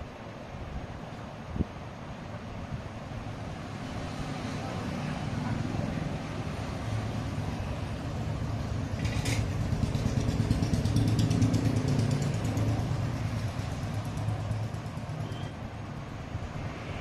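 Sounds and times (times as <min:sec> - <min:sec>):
engine humming: 0:04.7 - 0:17.0.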